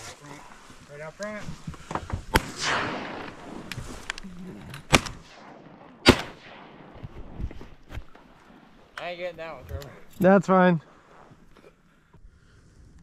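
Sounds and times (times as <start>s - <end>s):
shotgun blasts echoing: 2.3s - 4.0s, 4.8s - 7.5s.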